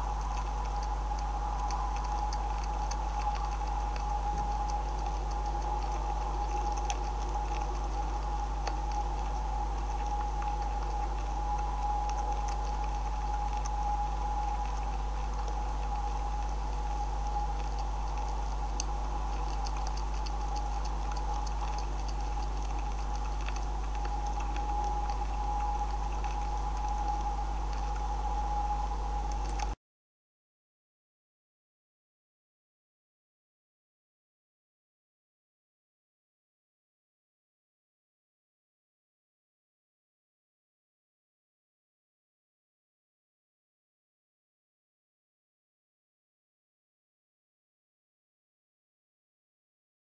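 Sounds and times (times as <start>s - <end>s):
beavers chewing on feed: 0.0s - 29.8s
electrical hum: 0.0s - 29.8s.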